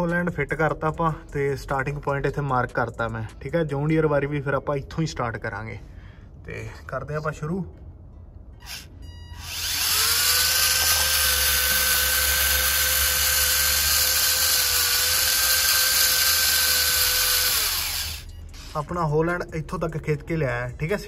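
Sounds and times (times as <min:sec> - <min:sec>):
toy electric motor whining: 0:08.6 - 0:18.8.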